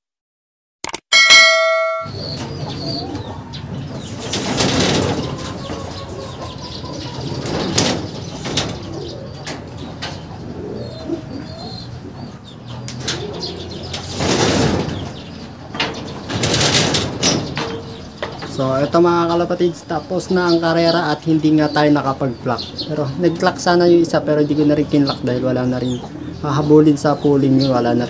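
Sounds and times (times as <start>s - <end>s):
pigeons cooing: 2.1s - 28.0s
pigeons flapping wings: 4.2s - 5.8s, 16.3s - 17.4s.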